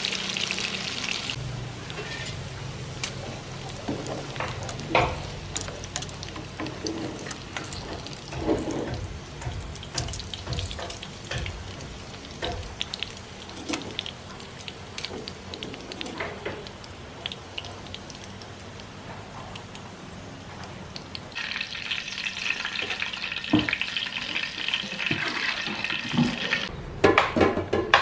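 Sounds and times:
shallots frying in hot oil: 0:00.0 - 0:26.7
metal tongs scraping a pan: 0:01.9 - 0:02.4, 0:04.3 - 0:11.8.

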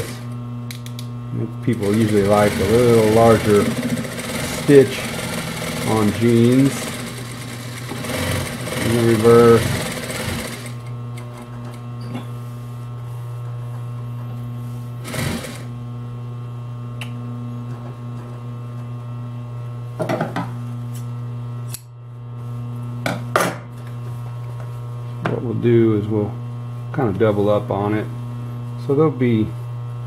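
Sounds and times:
sewing machine running: 0:00.0 - 0:00.3, 0:01.7 - 0:11.8, 0:15.0 - 0:15.8.

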